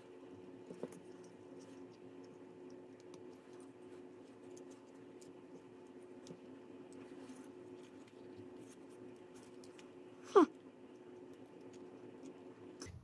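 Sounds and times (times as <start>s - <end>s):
low electrical hum: 0.0s - 13.0s.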